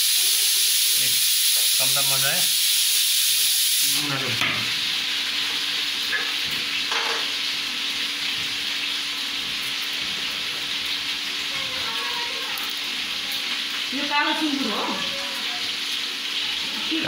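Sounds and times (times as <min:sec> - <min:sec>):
steady hiss: 0:00.0 - 0:04.3.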